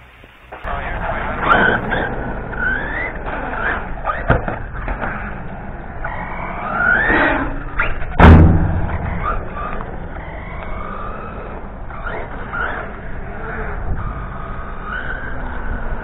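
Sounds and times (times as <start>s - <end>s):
rc car motor whining: 0.4s - 8.2s, 8.9s - 16.0s
loud thump: 8.1s - 9.3s.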